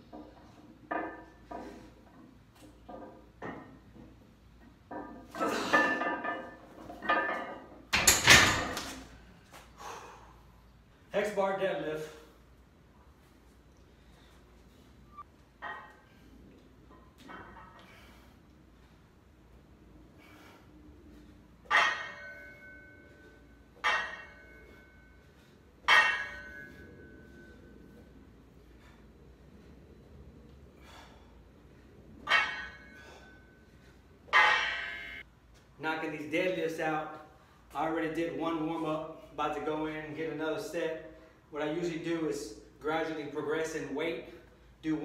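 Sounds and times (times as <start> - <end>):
metallic ring: 4.9 - 8.8, 21.5 - 28.1, 32.2 - 35.3
steel barbell clanking: 4.9 - 9.0, 21.6 - 27.6, 32.2 - 33.4, 34.3 - 35.2.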